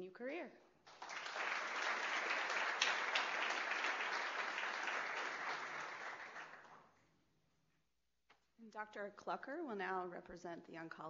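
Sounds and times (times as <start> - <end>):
audience applauding: 0.9 - 6.9.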